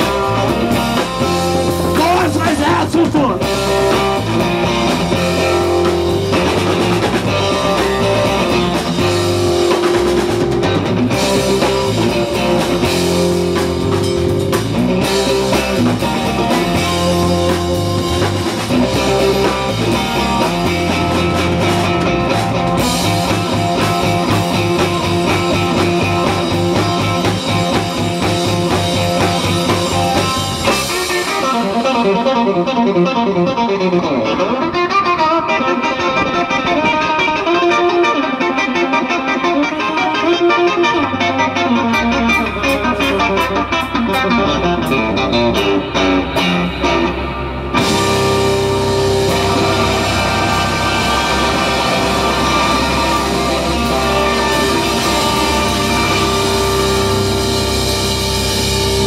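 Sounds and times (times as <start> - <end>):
drum kit: 0.0 - 33.0, 39.2 - 59.0
bass guitar: 0.0 - 59.0
electric guitar: 0.0 - 59.0.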